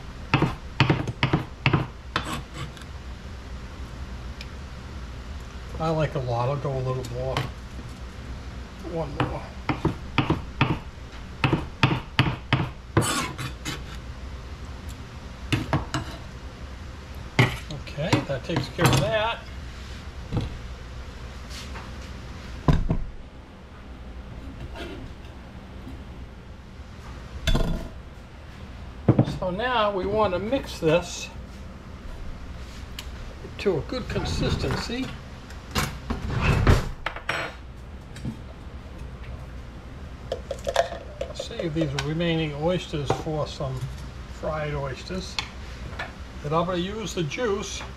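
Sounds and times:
knife chopping on plastic board: 0.3s - 2.4s, 9.2s - 10.8s, 11.4s - 12.8s
knife scrape: 2.2s - 2.8s, 13.0s - 14.0s, 24.5s - 25.4s.

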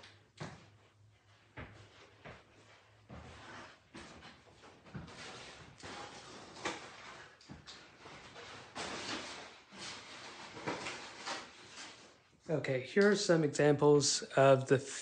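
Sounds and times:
footsteps on wooden floor: 0.4s - 5.8s.

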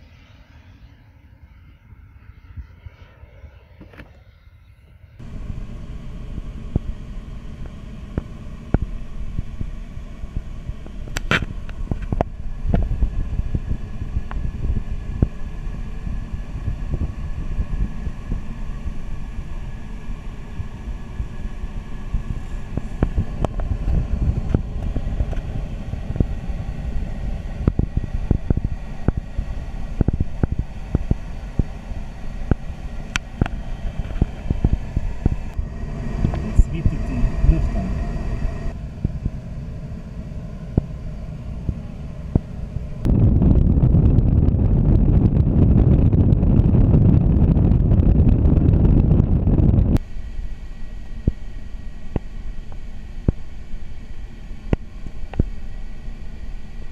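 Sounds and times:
low rush of air in cockpit: 0.0s - 56.9s
recording crackles and pops: 7.6s - 14.4s.

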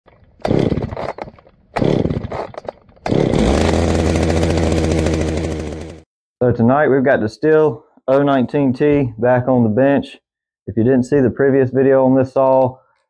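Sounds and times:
chainsaw revving: 0.4s - 6.1s.

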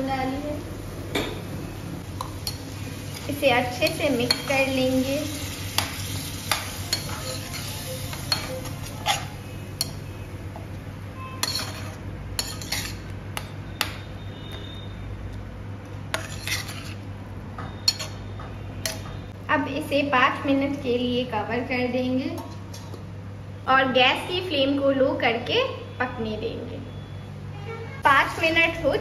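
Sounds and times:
onion masala frying: 0.0s - 21.5s
metal spatula scraping pan: 5.8s - 10.1s, 11.2s - 13.1s, 16.1s - 17.1s.

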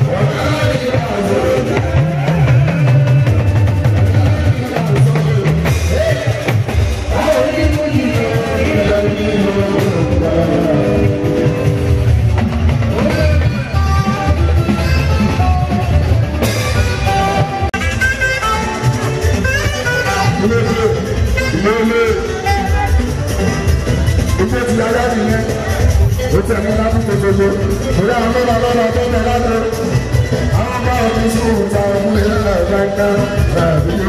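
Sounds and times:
man singing into microphone: 0.0s - 12.3s, 12.9s - 14.3s, 24.5s - 34.0s
band playing: 0.0s - 34.0s.

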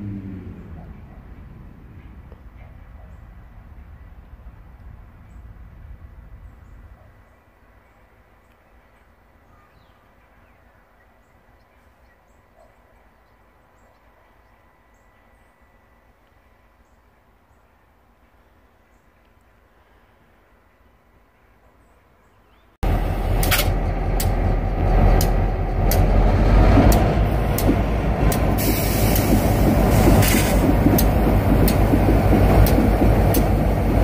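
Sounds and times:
low rumble: 22.8s - 34.0s.

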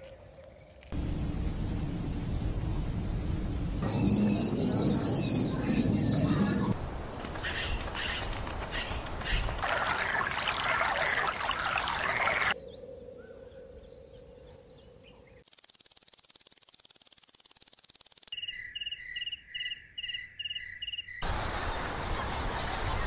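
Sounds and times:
high pulsing insect buzz: 15.4s - 18.4s
cricket chirps: 15.4s - 21.2s.

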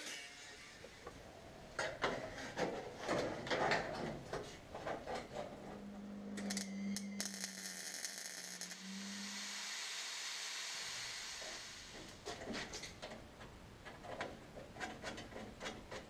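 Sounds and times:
steady low hum: 5.2s - 13.8s.

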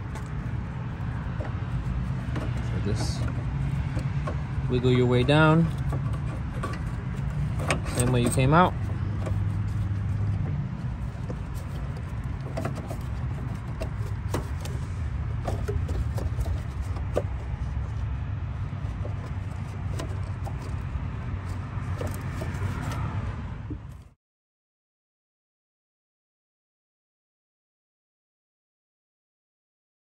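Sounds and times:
steady low rumble: 0.0s - 24.1s
tools clicking and knocking: 1.1s - 14.8s.

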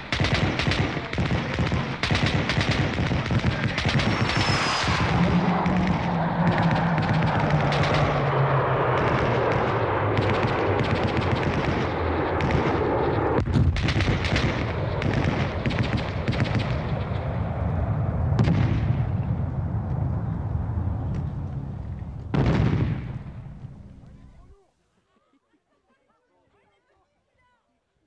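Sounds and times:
rifle and machine gun fire: 0.0s - 4.3s, 13.7s - 16.8s.

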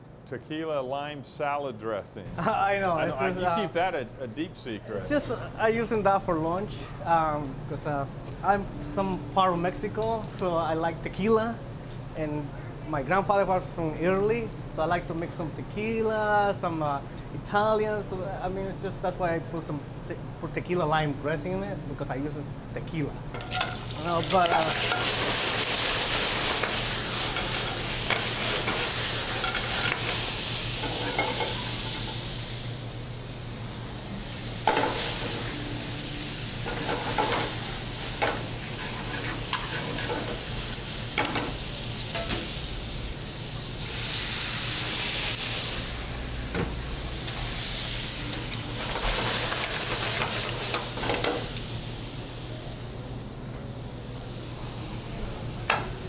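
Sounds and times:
metal utensils clinking on pans: 23.4s - 25.2s, 26.5s - 30.2s, 30.8s - 32.1s
food sizzling in pans: 23.4s - 53.0s.

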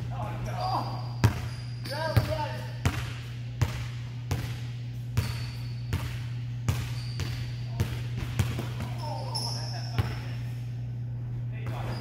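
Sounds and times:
steady low hum: 0.0s - 12.0s
basketball bouncing on wooden floor: 1.2s - 9.1s.

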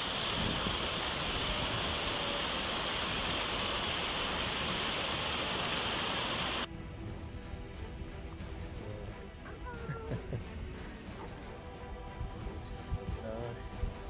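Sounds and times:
stream rushing over rocks: 0.0s - 6.7s.

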